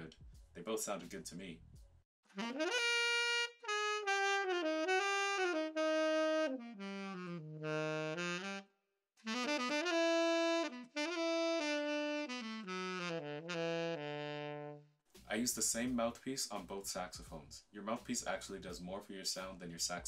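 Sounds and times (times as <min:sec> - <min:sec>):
tenor saxophone playing: 0:02.3 - 0:14.9.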